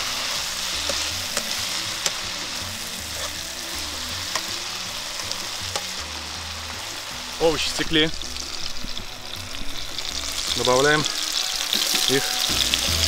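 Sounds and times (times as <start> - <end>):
food sizzling in a pan: 0.0 - 13.0
utensil clicking on pan: 4.3 - 4.5.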